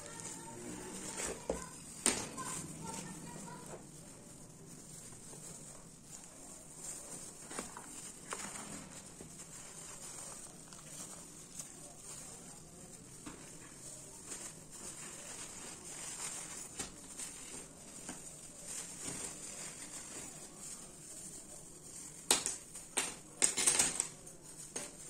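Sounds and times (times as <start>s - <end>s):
plastic crinkling and rustling: 0.0s - 25.0s.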